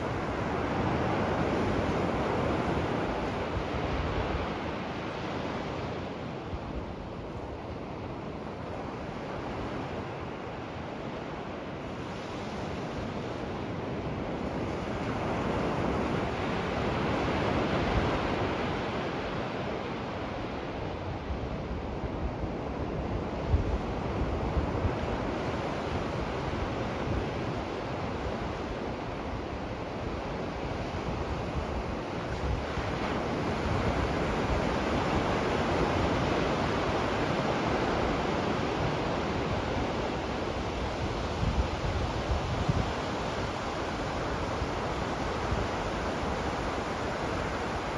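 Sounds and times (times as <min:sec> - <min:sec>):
wind buffeting microphone: 0:21.2 - 0:47.9.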